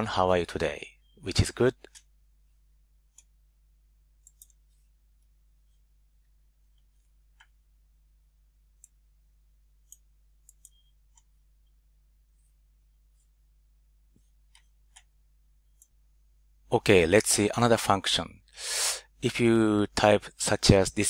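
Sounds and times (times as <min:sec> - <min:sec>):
faint room hum: 0:00.0 - 0:21.0
computer mouse clicks: 0:04.2 - 0:05.8, 0:09.8 - 0:11.4, 0:14.2 - 0:15.1, 0:15.7 - 0:16.0.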